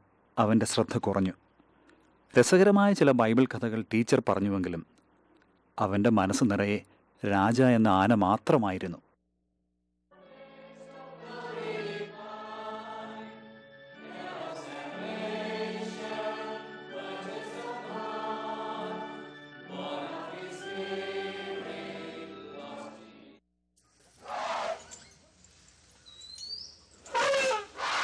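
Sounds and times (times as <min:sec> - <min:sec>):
congregation singing a hymn: 0:10.2 - 0:23.3.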